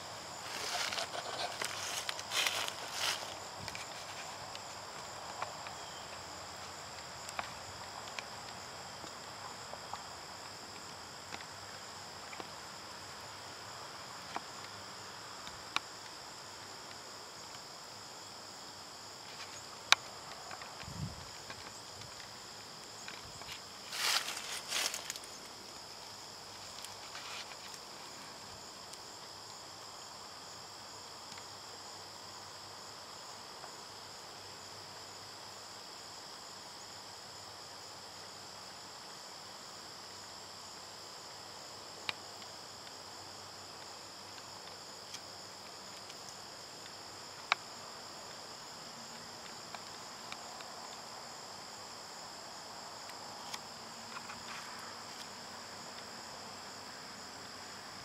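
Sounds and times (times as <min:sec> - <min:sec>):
field insects trilling: 0:00.0 - 0:58.0
brief rustling: 0:00.4 - 0:04.4.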